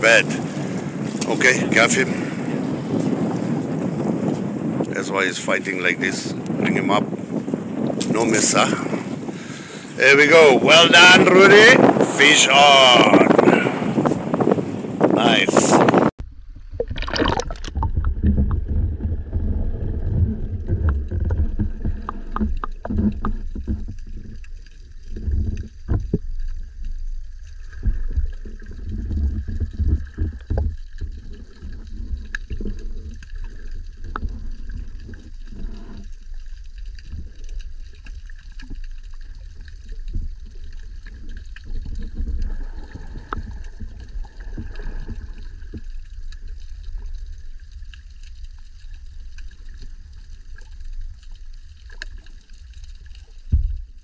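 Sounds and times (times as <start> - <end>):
underwater rumble of moving water: 0.0 - 54.0
underwater knocks and sloshes: 13.1 - 54.0.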